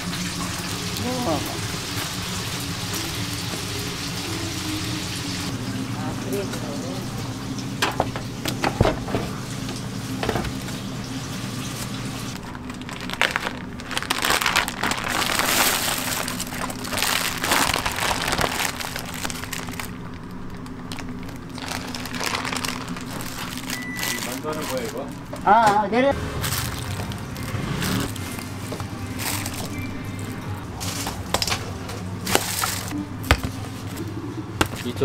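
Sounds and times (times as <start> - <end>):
low machine hum: 0.0 - 35.0
rustling and crinkling: 12.4 - 25.5, 26.4 - 29.8, 30.8 - 33.0.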